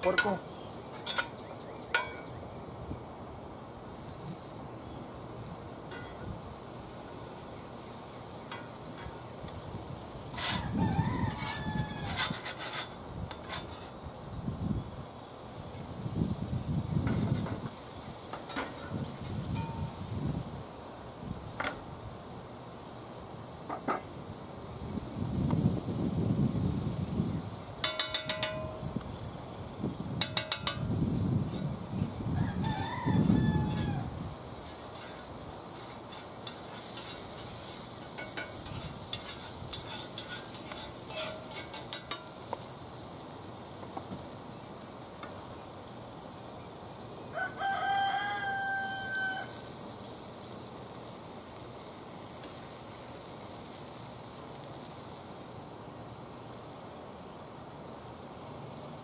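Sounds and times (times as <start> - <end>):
meat sizzling on grill: 0.0 - 59.0
rooster crowing: 10.5 - 12.4, 32.3 - 34.2, 47.3 - 49.7.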